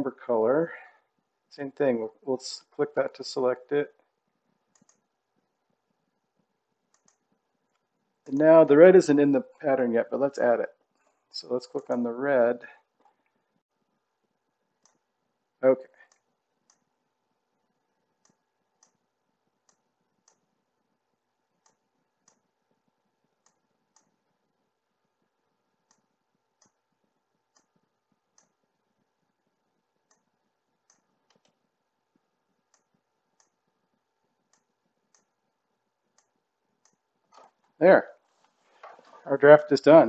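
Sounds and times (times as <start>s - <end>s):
faint computer mouse clicks: 4.7s - 5.0s, 6.9s - 7.9s, 30.1s - 31.6s.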